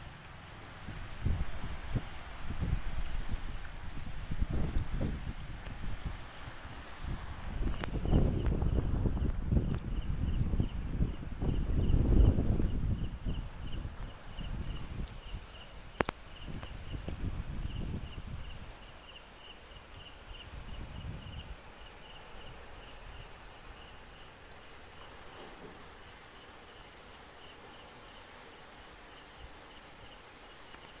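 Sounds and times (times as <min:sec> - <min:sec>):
insects pulsed chirping: 0:00.0 - 0:05.0, 0:07.6 - 0:31.0
high-pitched insect trill: 0:00.7 - 0:05.0, 0:07.6 - 0:31.0.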